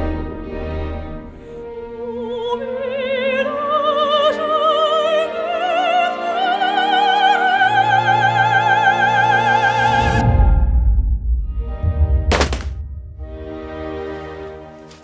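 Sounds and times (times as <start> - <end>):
operatic singing: 1.7 - 10.2.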